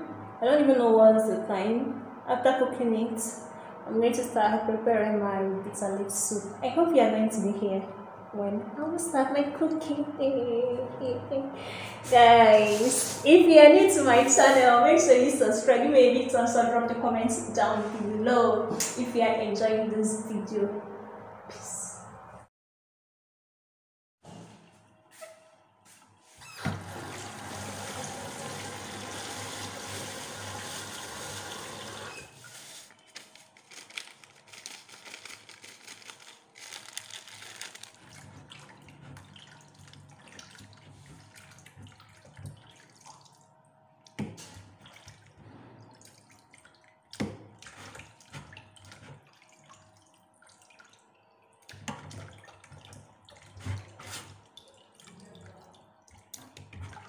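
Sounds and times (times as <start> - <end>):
water splashes and drips: 27.0 - 57.0.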